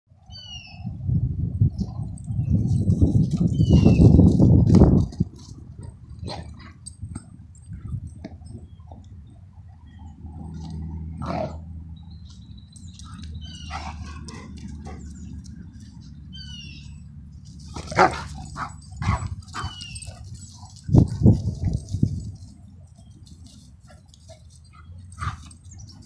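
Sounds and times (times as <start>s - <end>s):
birds chirping: 2.2s - 4.3s, 7.6s - 26.0s
dog barking: 17.9s - 19.7s.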